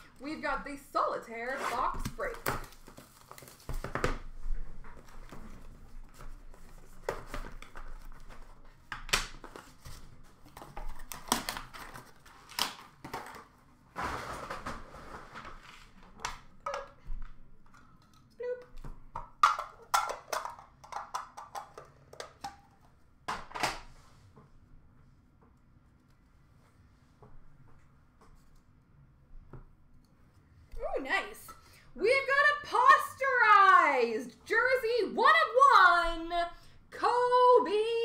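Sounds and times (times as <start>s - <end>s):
cards and packaging rustling: 1.5s - 13.7s.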